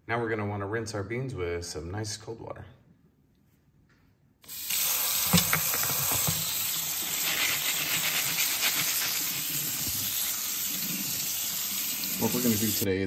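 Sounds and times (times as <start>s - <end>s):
tap water running onto beans: 4.5s - 12.9s.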